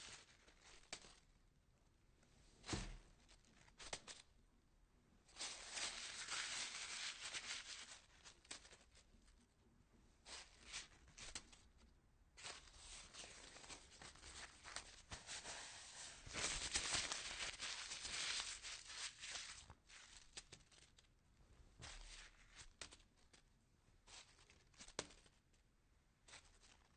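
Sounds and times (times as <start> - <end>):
paper crumpling: 5.4 - 9.0, 12.4 - 21.1.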